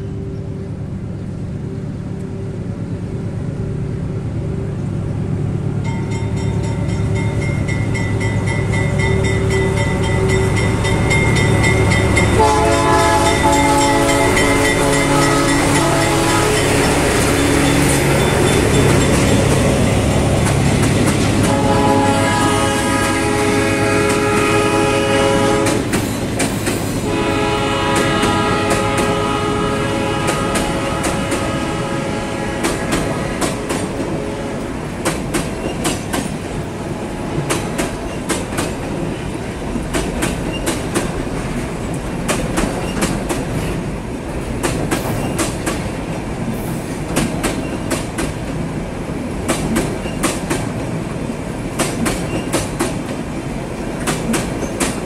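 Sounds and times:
diesel locomotive engines: 0.0s - 55.0s
wheels clacking over rail joints: 5.8s - 29.3s, 32.5s - 48.7s, 49.3s - 55.0s
locomotive horn blasts: 9.2s - 18.9s, 21.4s - 25.9s, 27.0s - 34.7s.

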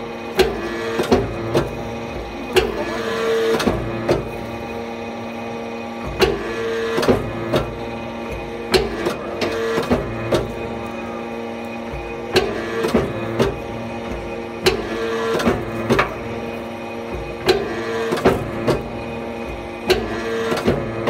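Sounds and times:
hydraulic press humming: 0.0s - 21.0s
sharp metal knocks and clanks: 11.9s - 16.2s.

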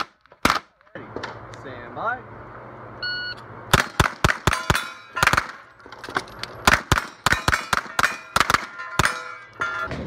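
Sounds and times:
carbine gunshots: 3.7s - 5.7s, 6.6s - 9.2s
ring of struck steel plates: 7.4s - 10.0s.

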